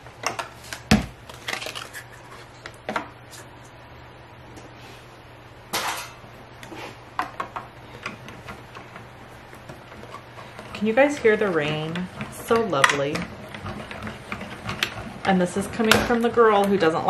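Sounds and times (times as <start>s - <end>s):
paper rustling: 0.6s - 2.6s.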